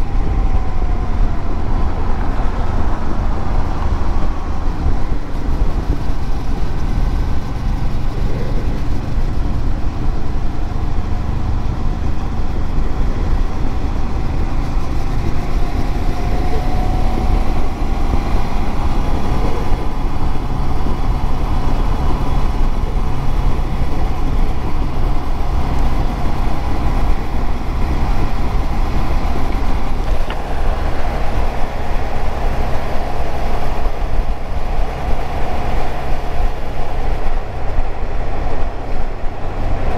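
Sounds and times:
motorcycle engine drone: 0.0 - 39.9
wind rush on microphone: 0.0 - 39.9.

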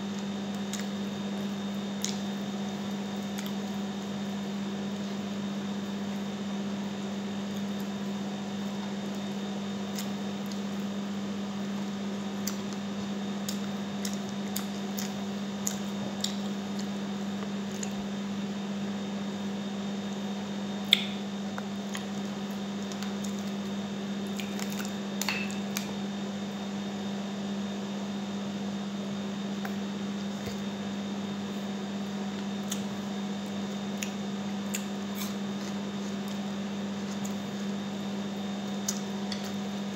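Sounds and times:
steady low hum: 0.0 - 39.9
wet chewing and lip smacks: 13.4 - 18.0, 32.4 - 32.9, 34.0 - 37.7.

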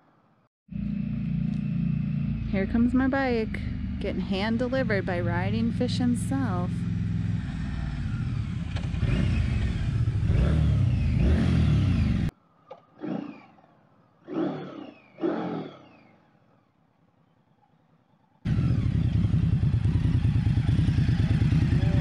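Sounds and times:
motorcycle engine revs: 0.7 - 12.3, 18.5 - 22.0
motorcycle engine running: 0.7 - 12.3, 18.5 - 22.0.

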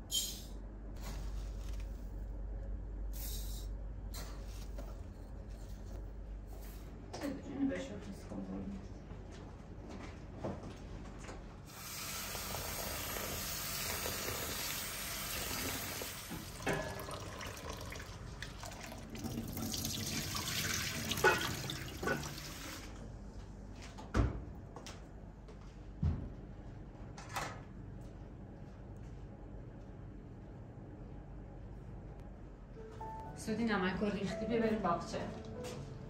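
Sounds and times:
kitchenware clinking: 21.1 - 22.4.

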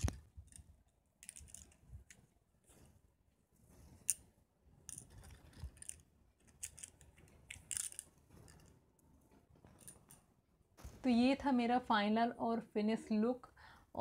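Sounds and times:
bangles clinking: 0.0 - 2.2, 4.0 - 9.1, 9.7 - 10.4.

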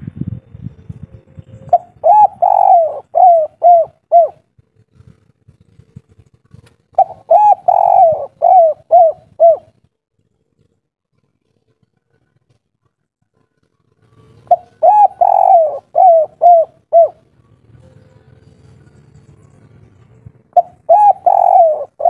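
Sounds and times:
dove cooing: 0.4 - 9.9, 14.0 - 22.0.

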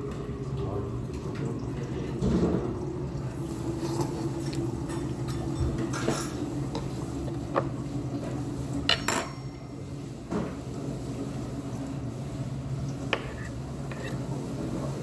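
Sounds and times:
metal utensils clinking on dishes: 4.9 - 6.9, 8.9 - 9.9
metal spoon scraping a pot: 13.1 - 14.3.

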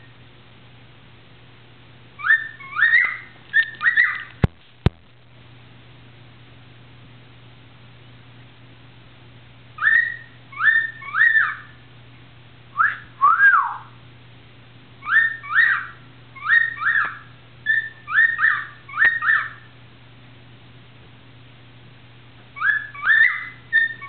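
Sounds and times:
low steady hum: 0.0 - 24.0
cockatiel whistling: 2.2 - 4.3, 9.8 - 11.8, 12.8 - 13.9, 15.0 - 19.7, 22.6 - 24.0.

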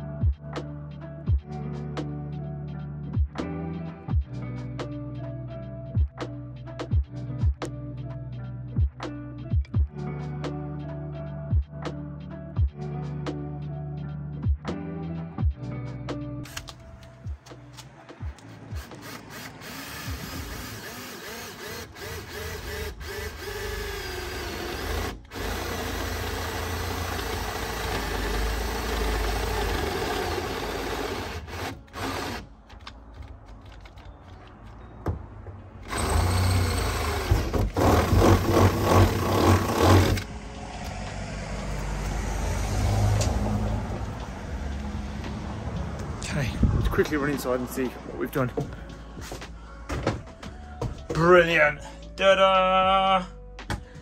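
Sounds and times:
cordless drill boring through steel: 18.8 - 32.4, 35.9 - 40.3.

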